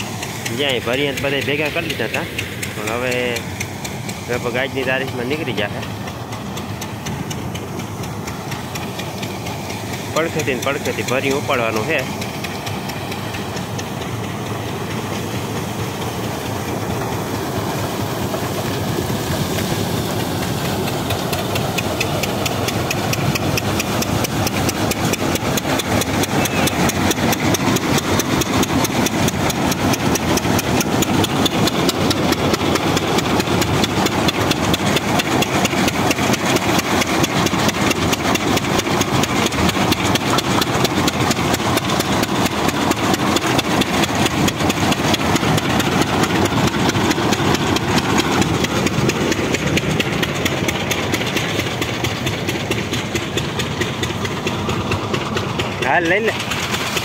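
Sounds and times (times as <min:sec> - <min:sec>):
diesel engine chugging: 0:00.0 - 0:57.0
thresher rattling: 0:00.0 - 0:57.0.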